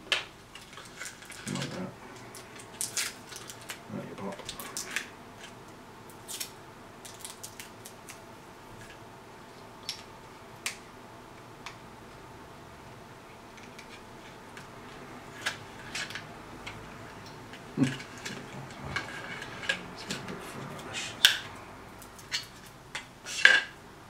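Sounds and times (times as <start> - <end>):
plastic packaging rustling: 0.5 - 8.0.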